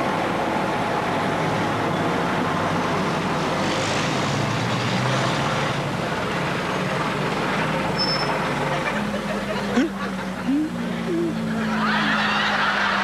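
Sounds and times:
bus diesel engine running: 0.0s - 13.0s.

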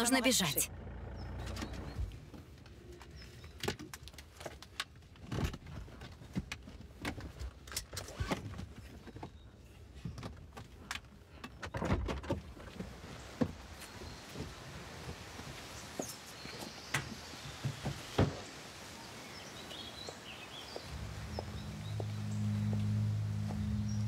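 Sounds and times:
low rumble: 20.9s - 24.0s.

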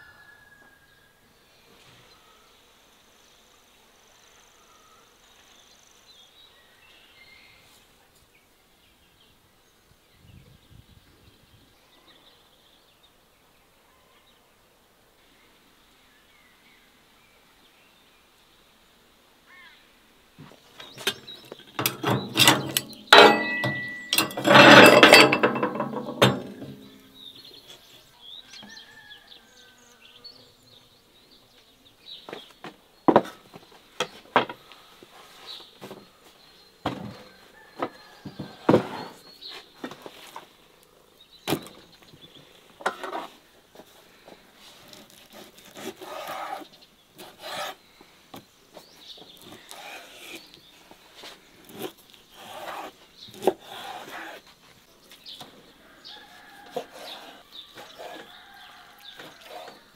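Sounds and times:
kitchen clattering and clanking: 21.0s - 27.0s.

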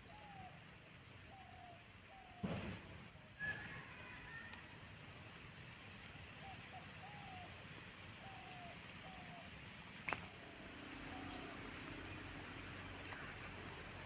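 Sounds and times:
low steady hum: 5.7s - 14.0s.

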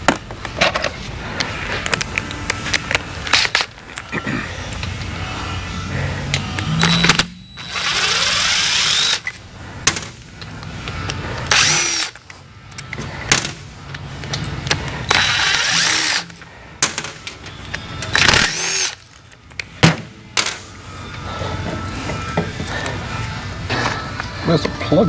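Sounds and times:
power drill whining: 3.4s - 9.4s, 11.4s - 12.9s, 15.1s - 16.5s, 17.6s - 19.1s.

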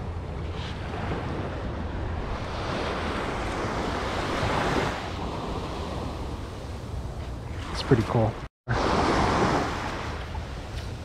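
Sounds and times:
wind on microphone: 0.0s - 8.1s
ocean wave washing in: 8.7s - 10.6s.

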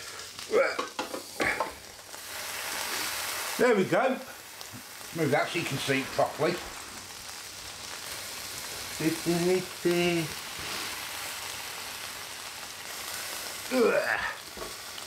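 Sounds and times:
ribs sizzling on grill plate: 0.0s - 15.0s
man's wordless vocal sounds: 13.7s - 14.5s.

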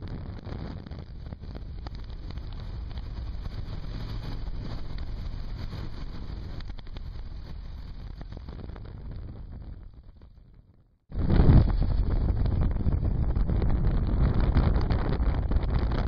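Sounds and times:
motorcycle engine rumble: 0.0s - 10.7s
wind buffeting microphone: 0.0s - 16.0s
road noise: 1.0s - 9.2s.

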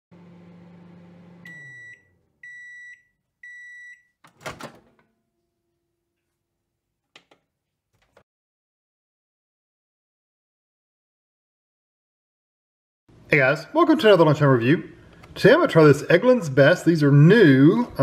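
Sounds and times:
microwave oven humming: 0.1s - 2.8s
microwave beeps: 1.2s - 4.2s
door clicks: 4.2s - 5.1s, 7.1s - 8.2s.

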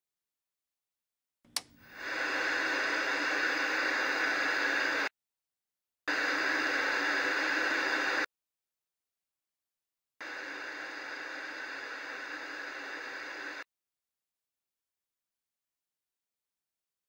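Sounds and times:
tv static hiss: 1.8s - 5.1s, 6.1s - 8.3s, 10.2s - 13.7s.

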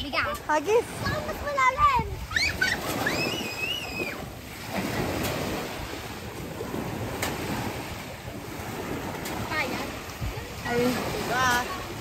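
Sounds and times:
children splashing in water: 0.0s - 12.0s
small surf washing in: 0.0s - 12.0s
wind on microphone: 0.0s - 12.0s
child squealing: 2.3s - 4.2s.

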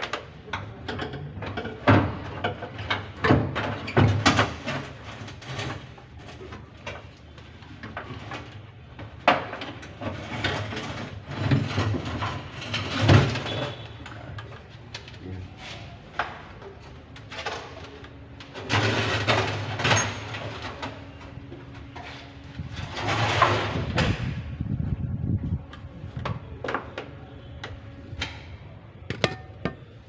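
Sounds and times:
knocks and clanks on metal: 0.0s - 7.0s, 29.1s - 30.0s.

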